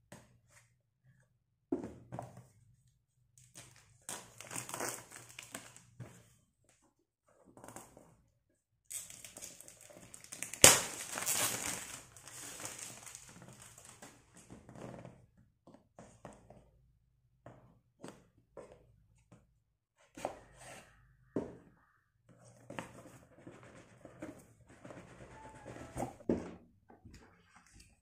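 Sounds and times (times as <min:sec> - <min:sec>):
plastic shrink-wrap crinkling: 0:04.3 - 0:05.8, 0:08.9 - 0:14.2.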